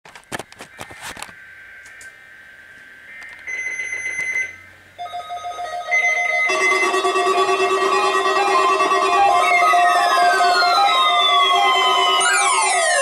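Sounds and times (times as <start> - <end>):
raspy data bursts: 0.5 - 4.7
steady electronic tones: 0.8 - 13.0.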